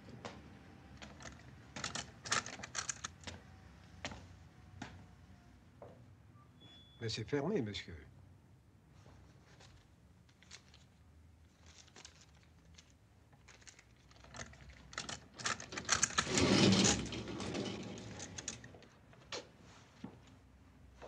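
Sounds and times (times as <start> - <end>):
metal scissor gate rattling: 14.0 - 18.8.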